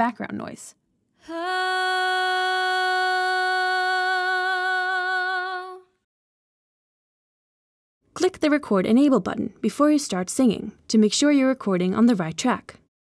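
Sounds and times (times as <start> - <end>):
person singing a long held note: 1.3 - 6.0.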